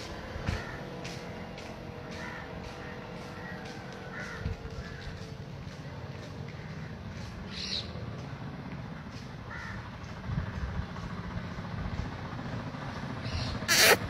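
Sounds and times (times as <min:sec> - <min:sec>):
steady low rumble: 0:00.0 - 0:13.7
harsh animal calls: 0:13.4 - 0:14.0.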